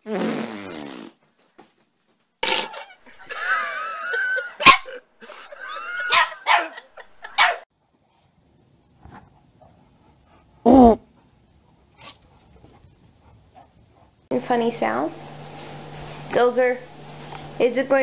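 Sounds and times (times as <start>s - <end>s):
buzzing fart: 0.0s - 1.2s, 2.4s - 3.1s
dog barking: 4.6s - 5.0s, 6.1s - 7.6s.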